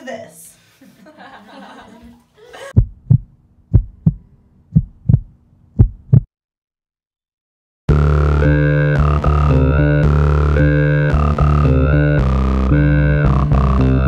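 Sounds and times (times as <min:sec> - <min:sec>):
heartbeat thumps: 0:02.8 - 0:06.3.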